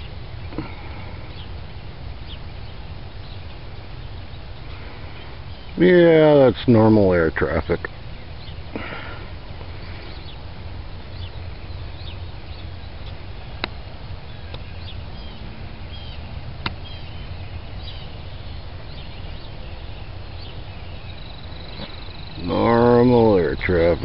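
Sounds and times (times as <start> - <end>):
small birds chirping: 0.0 - 24.0
steady low rumble: 0.0 - 24.0
sharp clicks: 16.6 - 16.8.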